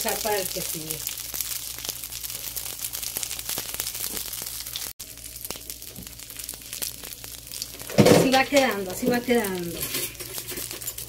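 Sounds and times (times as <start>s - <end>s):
bread frying in a pan: 0.0s - 11.0s.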